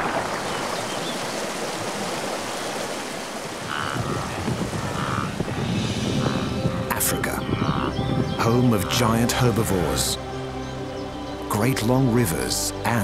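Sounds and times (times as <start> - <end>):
river water rushing: 0.0 - 7.8.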